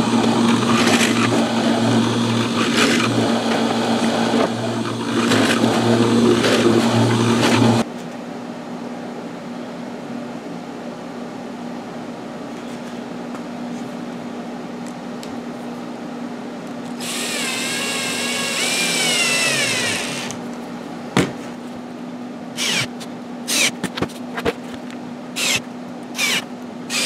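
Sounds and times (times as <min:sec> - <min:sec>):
cordless drill motor whirring: 0:17.0 - 0:20.4, 0:22.6 - 0:22.9, 0:23.5 - 0:23.8, 0:25.4 - 0:27.0
drill click: 0:17.0 - 0:20.4, 0:22.6 - 0:23.8, 0:25.4 - 0:27.0.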